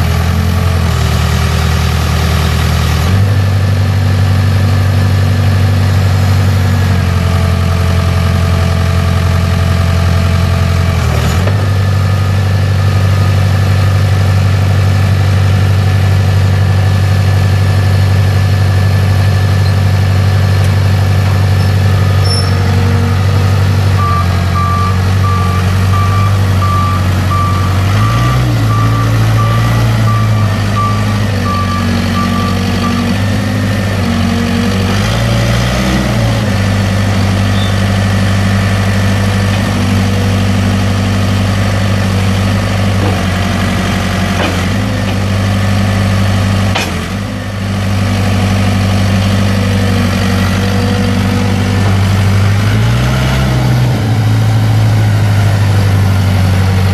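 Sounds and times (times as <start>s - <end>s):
diesel engine running: 0.0s - 56.9s
reversing alarm beeping: 24.0s - 33.2s.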